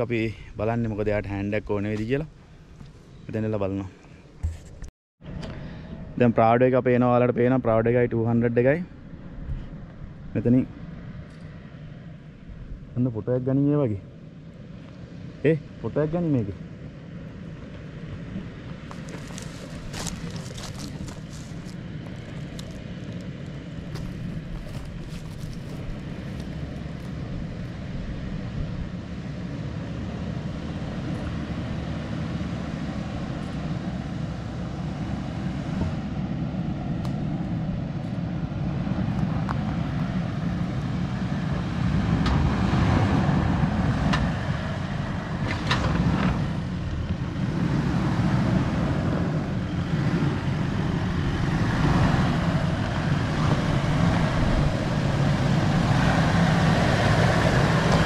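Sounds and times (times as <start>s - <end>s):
vehicle engine under load: 16.9s - 58.0s.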